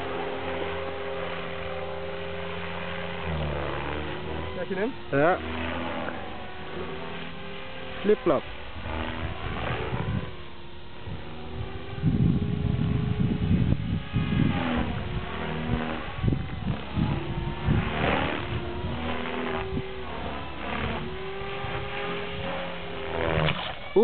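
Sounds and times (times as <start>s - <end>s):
rc helicopter rotor whine: 0.0s - 24.0s
wind rumble on microphone: 8.5s - 24.0s.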